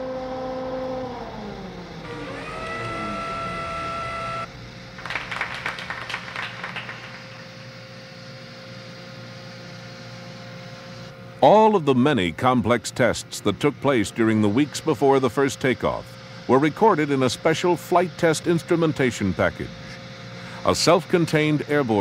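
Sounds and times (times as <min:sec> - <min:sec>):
motor whine: 0:00.0 - 0:11.4
steady machine hum: 0:00.0 - 0:22.0.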